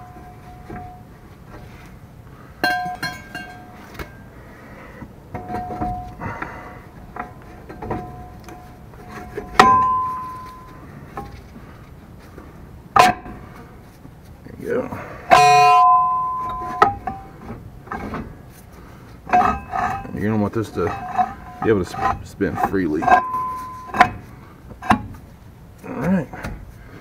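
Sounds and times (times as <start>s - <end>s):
metallic knocks on brake drum: 9.4s - 10.7s
light metal scraping: 15.3s - 25.3s.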